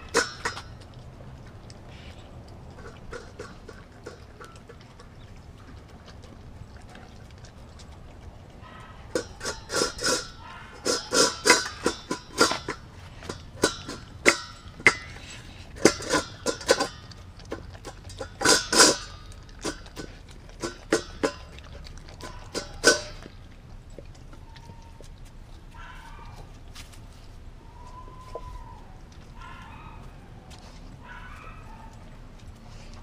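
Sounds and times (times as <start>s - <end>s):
metal bowl clinking on tiles: 0.0s - 0.8s, 2.7s - 4.8s, 9.1s - 15.2s, 15.8s - 23.3s
dog chewing and licking: 0.0s - 33.0s.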